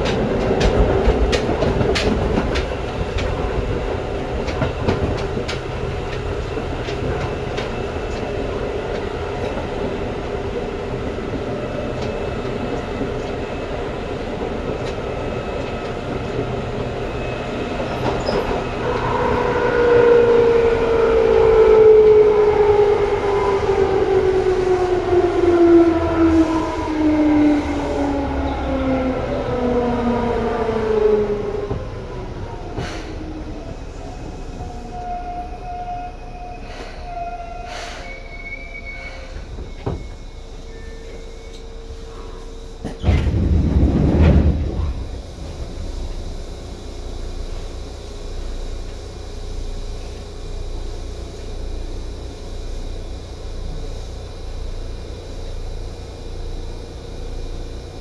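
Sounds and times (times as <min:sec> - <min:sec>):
train motors groaning: 0:00.0 - 0:58.0
loud low rush: 0:43.3 - 0:48.1.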